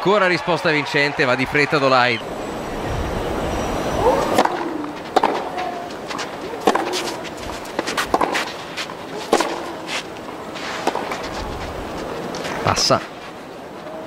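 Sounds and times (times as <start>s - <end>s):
tennis ball bouncing: 4.2s - 12.6s
tennis racket hitting ball: 4.2s - 12.6s.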